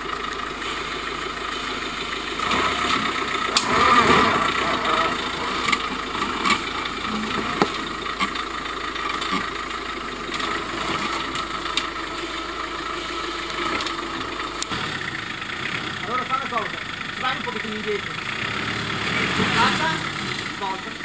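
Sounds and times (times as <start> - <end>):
car engine running at low revs: 0.0 - 21.0
wheels knocking on stones: 0.2 - 15.6.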